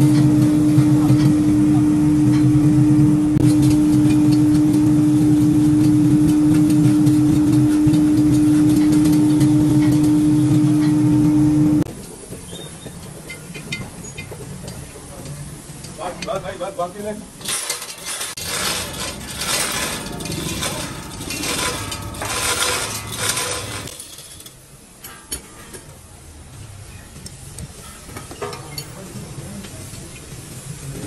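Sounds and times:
machine motor humming: 18.1s - 24.0s.

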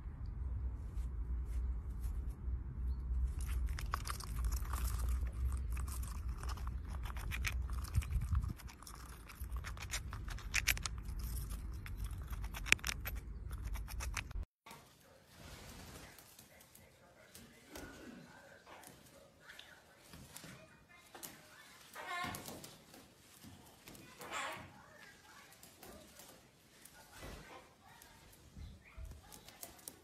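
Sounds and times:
squirrel gnawing a nut: 3.1s - 14.5s, 21.1s - 30.0s.

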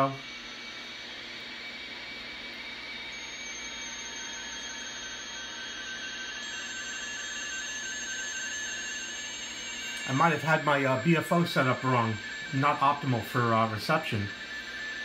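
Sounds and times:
faint radioteletype tones: 0.0s - 15.0s
shortwave radio static: 9.9s - 15.0s.

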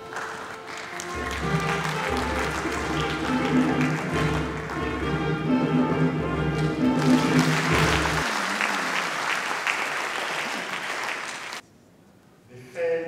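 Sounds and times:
audience applause: 0.0s - 5.1s, 6.5s - 11.6s
instrumental music with bass line: 1.1s - 8.2s.

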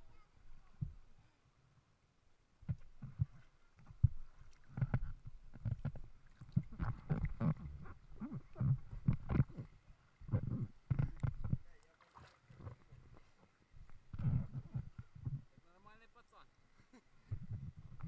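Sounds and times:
water lapping against inflatable: 2.7s - 16.0s.

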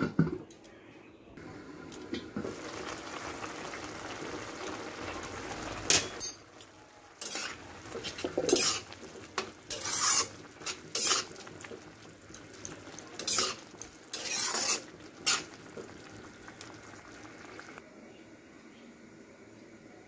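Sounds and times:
spatula scraping curry in a wok: 7.2s - 11.8s, 13.0s - 15.6s.

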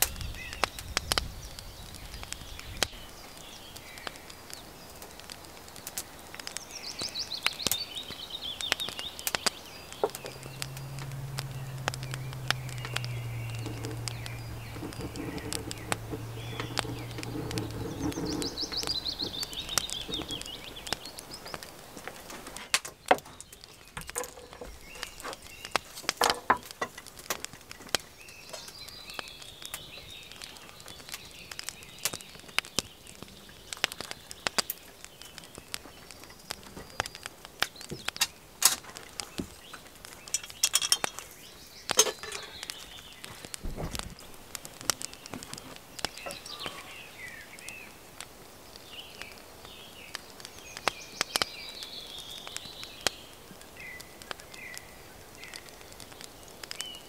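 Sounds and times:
birds singing descending trills: 0.0s - 22.0s, 22.9s - 26.8s, 27.8s - 38.4s, 39.2s - 57.0s
rain pattering and dripping: 0.0s - 57.0s
wood fire crackling: 0.0s - 57.0s
low steady hum: 9.5s - 21.8s.

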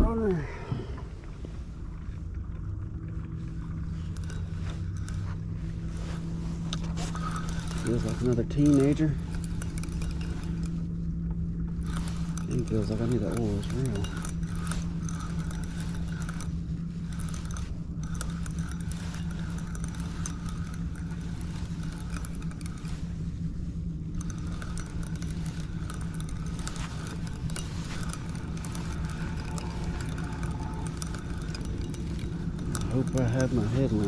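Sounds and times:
light clicks and rattles: 0.0s - 34.0s
low mechanical hum: 0.0s - 34.0s.

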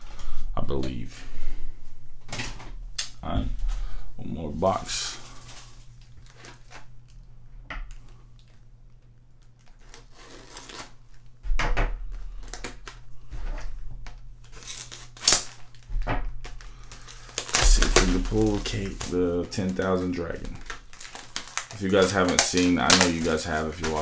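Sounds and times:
packaging rustling and crackling: 4.7s - 7.3s, 7.9s - 11.3s, 12.1s - 24.0s.

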